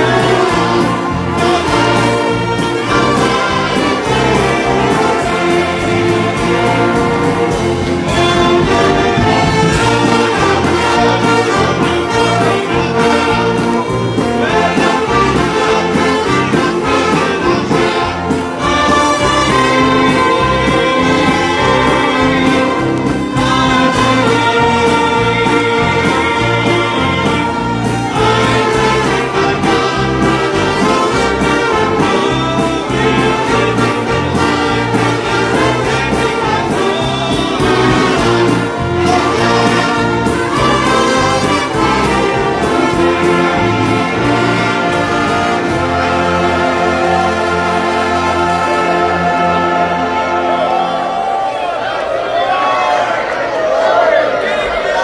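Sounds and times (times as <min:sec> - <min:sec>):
brass band playing: 0:00.0 - 0:55.0
choir singing: 0:00.0 - 0:55.0.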